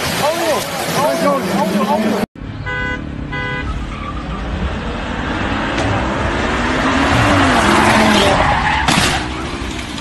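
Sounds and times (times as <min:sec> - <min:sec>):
car engine passing by: 0:04.1 - 0:10.0.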